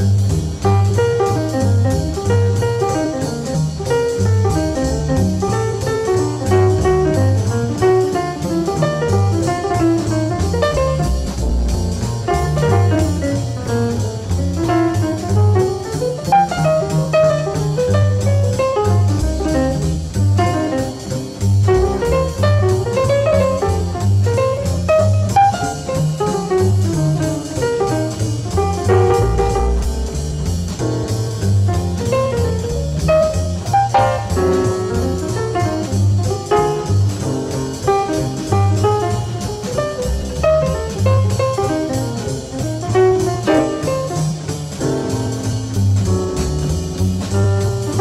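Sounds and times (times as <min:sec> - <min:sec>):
jazz guitar with bass and drums: 0:00.0 - 0:48.0.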